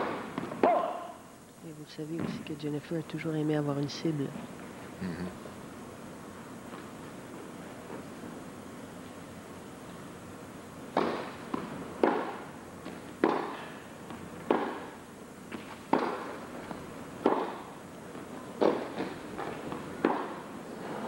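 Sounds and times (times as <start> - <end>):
tennis balls struck by rackets: 0.0 - 0.9, 10.9 - 16.5, 17.2 - 17.7, 18.6 - 20.5.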